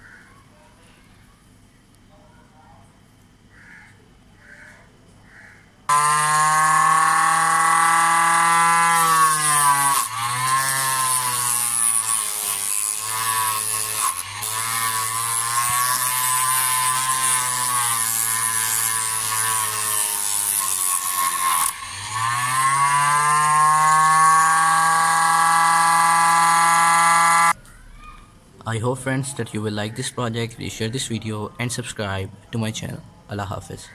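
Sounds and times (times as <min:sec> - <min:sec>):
disc sander motor whine: 0:05.9 - 0:11.7, 0:20.9 - 0:27.6
pliers grinding on sanding disc: 0:05.9 - 0:27.6.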